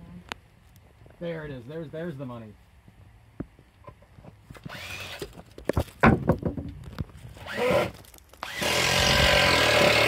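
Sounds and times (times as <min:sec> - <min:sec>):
power drill running: 0:04.7 - 0:05.2, 0:07.4 - 0:10.0
sharp knocks on wood: 0:05.8 - 0:06.8.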